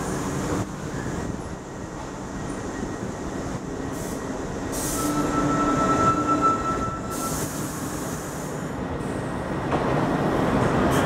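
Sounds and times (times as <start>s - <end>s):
subway train rumbling: 0.0s - 11.0s
thin brake squeal: 4.8s - 7.9s.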